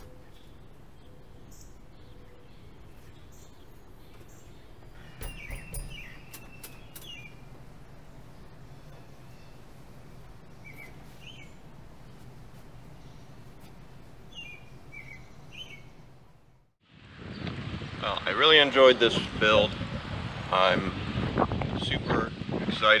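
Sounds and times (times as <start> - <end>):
birds chirping: 0.0 - 16.6
low steady hum: 0.0 - 19.1
bicycle clicks and knocks: 4.9 - 7.4.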